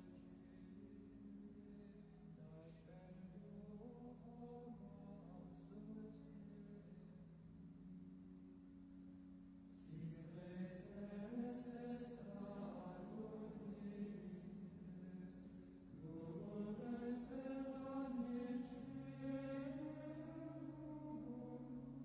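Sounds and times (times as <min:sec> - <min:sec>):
person singing: 0:09.8 - 0:22.0.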